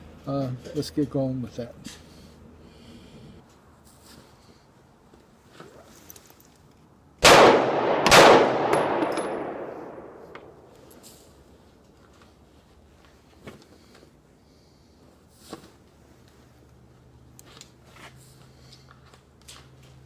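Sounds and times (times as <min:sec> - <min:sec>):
pistol shots echoing: 0:07.2 - 0:10.7.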